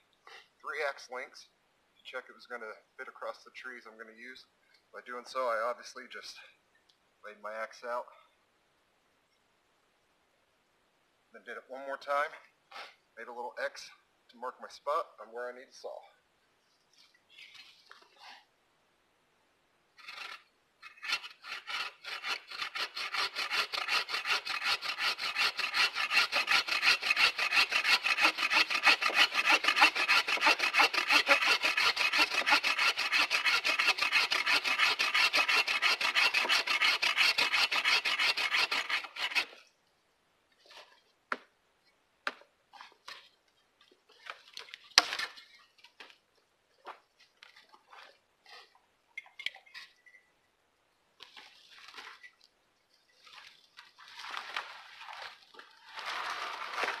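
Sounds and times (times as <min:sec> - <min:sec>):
bow saw cutting log: 0:20.0 - 0:39.6, 0:55.8 - 0:57.0.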